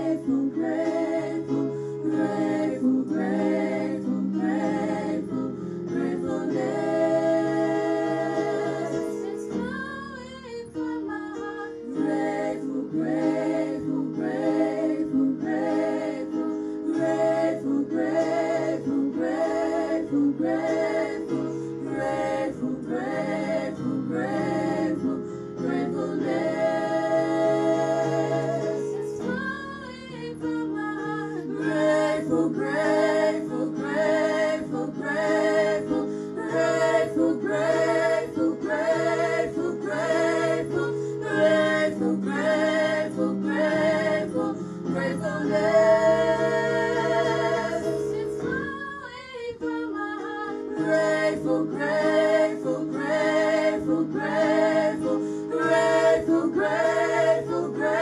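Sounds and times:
woman singing gospel song: 8.9s - 12.1s, 48.2s - 51.9s.

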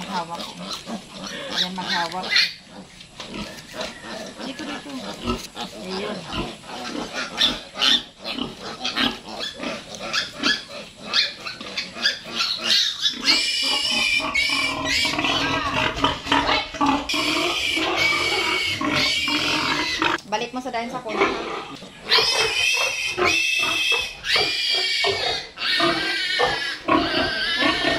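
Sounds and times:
piglet squealing and grunting: 0.0s - 20.2s, 21.1s - 27.9s.

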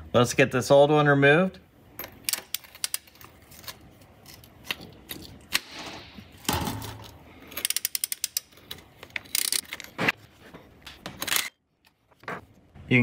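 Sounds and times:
ratchet wrench clicking: 7.6s - 8.5s, 9.2s - 9.7s.

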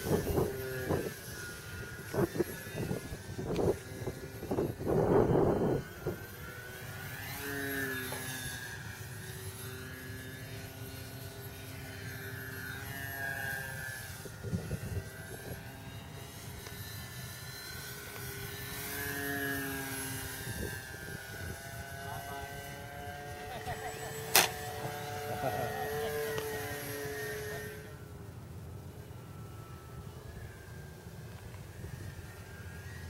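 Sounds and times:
model plane motor whining: 0.0s - 33.0s.

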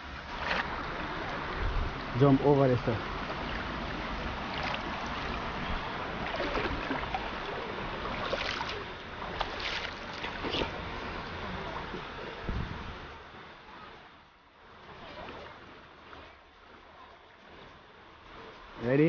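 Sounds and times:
river water rushing: 0.0s - 12.2s.

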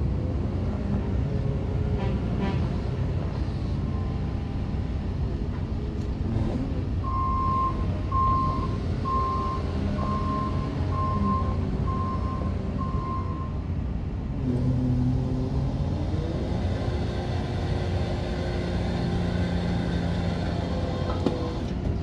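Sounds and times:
diesel engine running: 2.8s - 22.0s
reversing alarm beeping: 7.0s - 13.6s.

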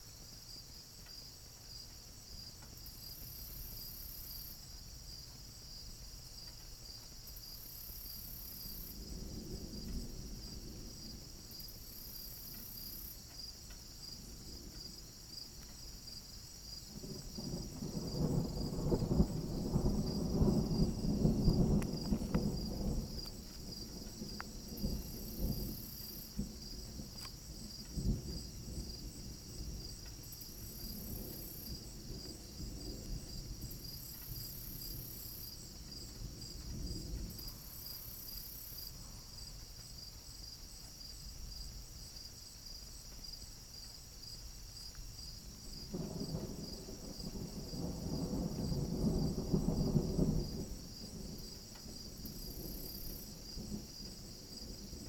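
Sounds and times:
crickets chirping: 0.0s - 55.0s
thunder rumbling: 8.3s - 13.0s, 16.9s - 39.2s, 45.8s - 55.0s.

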